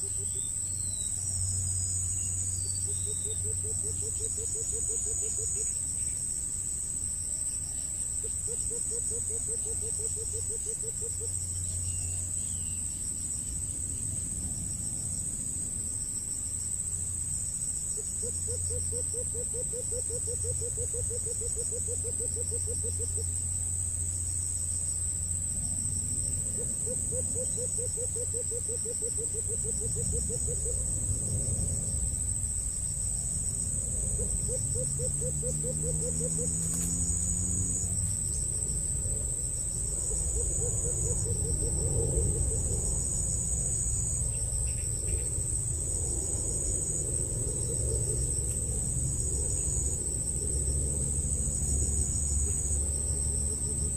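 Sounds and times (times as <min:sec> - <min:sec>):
insect chirps: 0:00.0 - 0:53.9
insects shrilling: 0:32.0 - 0:53.9.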